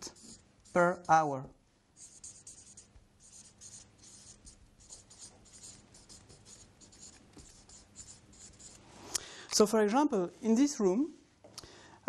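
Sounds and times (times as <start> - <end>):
marker scratching on paper: 0.0 - 1.3, 2.0 - 8.8.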